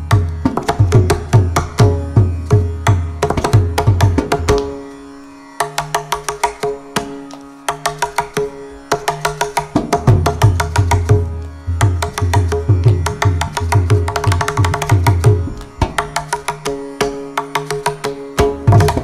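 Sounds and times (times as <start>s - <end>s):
tanpura drone: 0.0s - 19.0s
hand drum solo: 9.7s - 11.2s, 11.9s - 16.1s, 18.4s - 19.0s.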